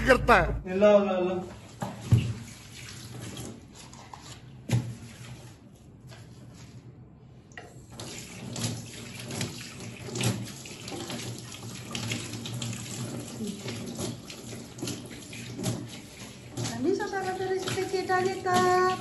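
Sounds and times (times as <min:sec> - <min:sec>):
tap water running into sink: 0:07.5 - 0:19.0.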